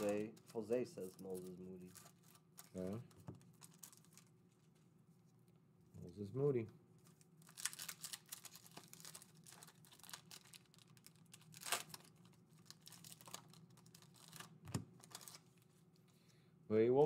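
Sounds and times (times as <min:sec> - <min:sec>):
foil wrappers crinkling and tearing: 0:00.0 - 0:04.3, 0:07.0 - 0:15.7
faint steady hum: 0:00.0 - 0:17.0.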